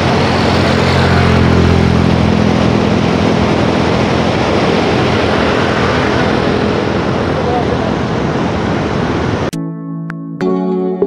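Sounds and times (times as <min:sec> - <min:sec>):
vehicle engine humming: 0:00.0 - 0:09.5
water rushing: 0:00.0 - 0:09.5.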